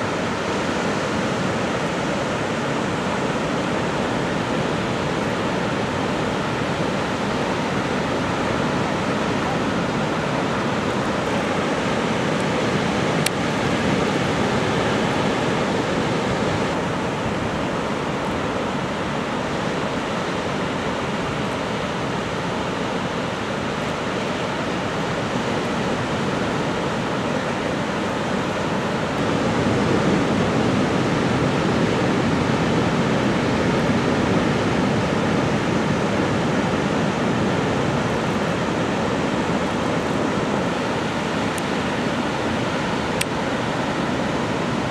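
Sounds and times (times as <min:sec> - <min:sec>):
ocean waves breaking: 0:00.0 - 0:44.9.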